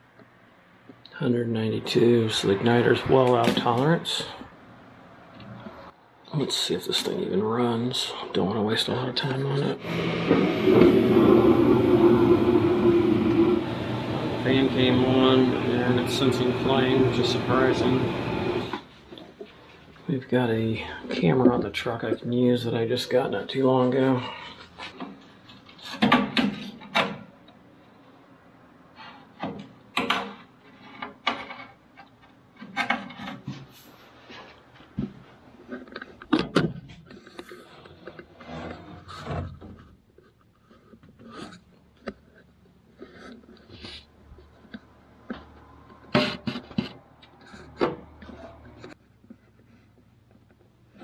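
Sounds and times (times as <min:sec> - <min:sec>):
camera probe scraping sheet metal: 0:09.8 - 0:18.9, 0:37.1 - 0:44.5.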